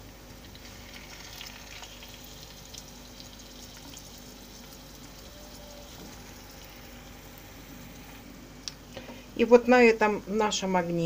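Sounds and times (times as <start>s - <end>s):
chicken frying in oil: 0.0s - 8.2s.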